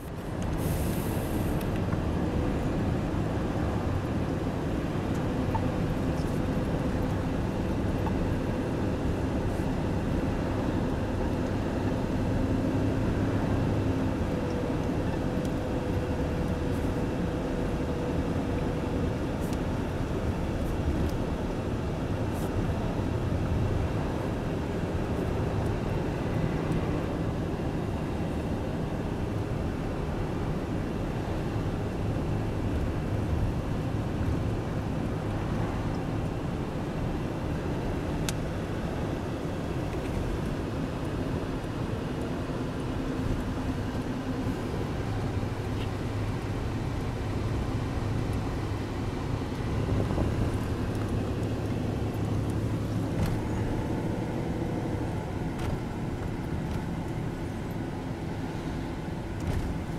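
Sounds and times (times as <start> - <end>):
car road noise from inside: 0.0 - 59.9.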